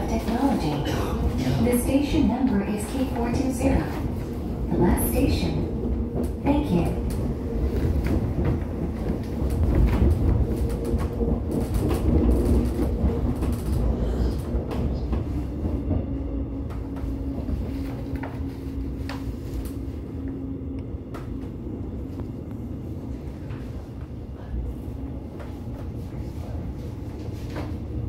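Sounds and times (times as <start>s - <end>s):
train wheels rumbling on track: 0.0s - 28.0s.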